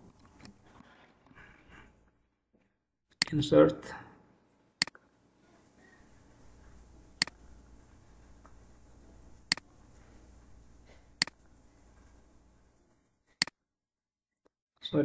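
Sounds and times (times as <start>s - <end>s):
faint low hum: 3.2s - 13.2s.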